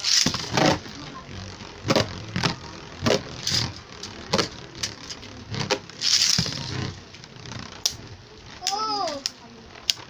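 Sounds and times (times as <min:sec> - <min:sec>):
spinning tops clattering: 0:00.0 - 0:01.0, 0:01.7 - 0:10.0
ripcord launcher whizz: 0:00.0 - 0:10.0.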